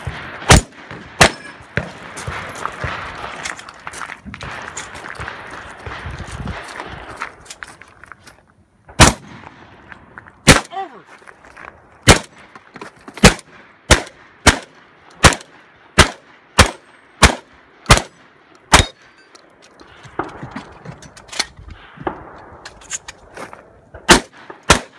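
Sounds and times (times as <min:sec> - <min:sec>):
loud sharp gunshots: 0:00.0 - 0:03.5, 0:09.0 - 0:09.7, 0:10.4 - 0:10.9, 0:12.0 - 0:12.5, 0:13.2 - 0:19.0, 0:24.0 - 0:24.9.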